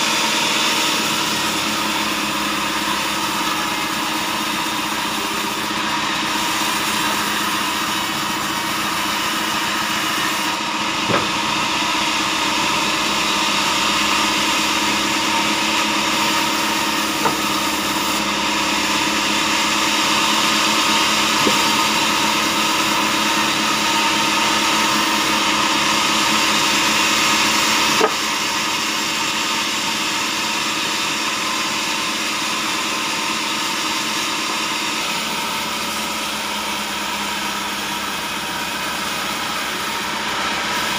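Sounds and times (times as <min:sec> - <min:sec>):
band saw cutting log: 0:00.0 - 0:40.9
sharp knocks: 0:11.0 - 0:11.4, 0:17.2 - 0:17.6, 0:21.4 - 0:21.8.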